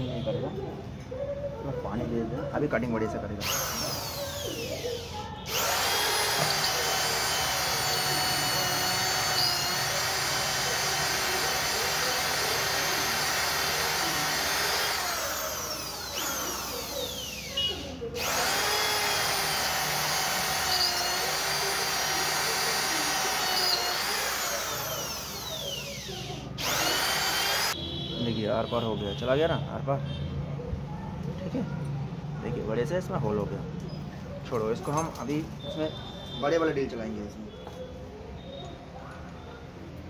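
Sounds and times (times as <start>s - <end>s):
electric drill motor whining: 3.4s - 27.8s.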